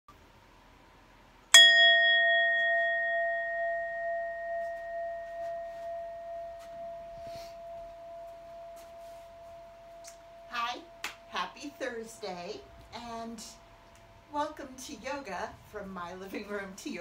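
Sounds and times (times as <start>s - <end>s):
singing bowl ringing: 1.5s - 13.8s.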